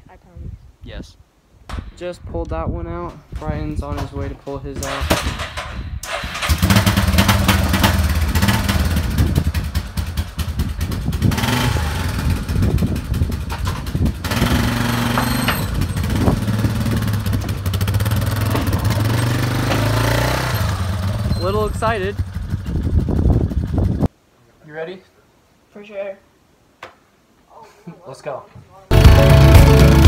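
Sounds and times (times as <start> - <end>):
quad engine revving: 6.3 - 23.7.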